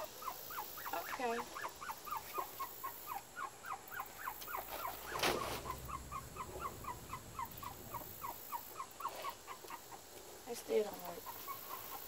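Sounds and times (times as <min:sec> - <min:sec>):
bird chirping: 0:00.0 - 0:10.1
rustling: 0:04.2 - 0:10.4.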